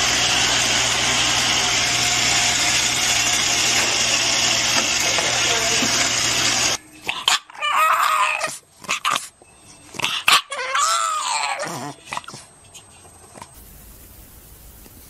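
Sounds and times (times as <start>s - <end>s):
puppy howling: 7.1s - 9.1s, 10.3s - 12.0s.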